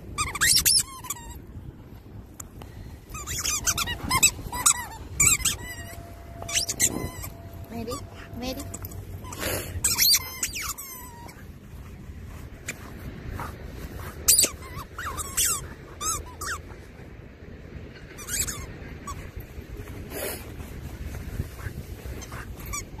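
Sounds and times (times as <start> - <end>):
paws scraping sandy soil: 2.1 - 17.2, 18.3 - 23.0
dog whining: 3.1 - 11.6, 14.3 - 16.6.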